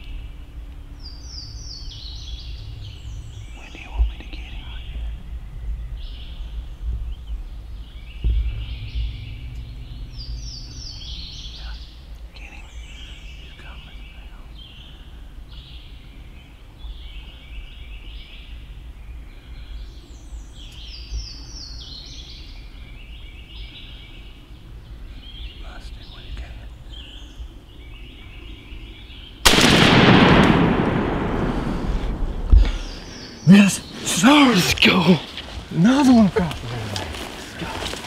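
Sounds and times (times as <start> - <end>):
songbirds singing: 0.0 - 38.0
steady low rumble: 0.0 - 38.0
single thump: 8.2 - 9.9, 32.4 - 32.8.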